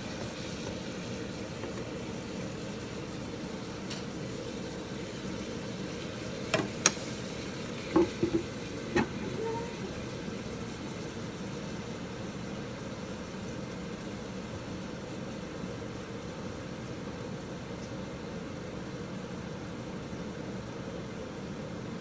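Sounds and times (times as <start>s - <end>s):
bacon sizzling in a wok: 0.0s - 21.7s
wooden lid knocking on wok: 7.9s - 9.2s.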